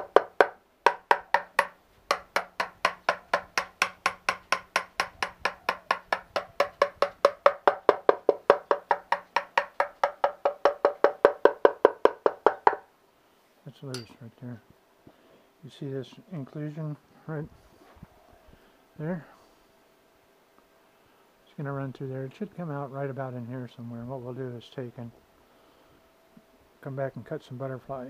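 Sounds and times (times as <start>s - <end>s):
tapping on hollow wooden vessel: 0.0s - 12.8s.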